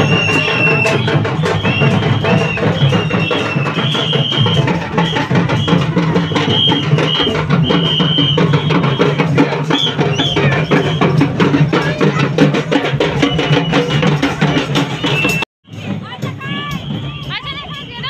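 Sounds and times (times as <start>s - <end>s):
high whistle-like notes: 0.0s - 11.4s, 13.2s - 15.4s
fast barrel drumming: 0.0s - 18.0s.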